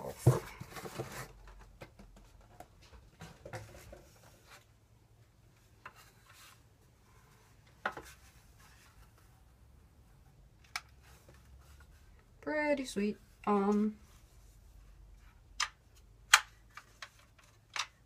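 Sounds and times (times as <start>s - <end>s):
cardboard rustling: 0.0s - 4.7s.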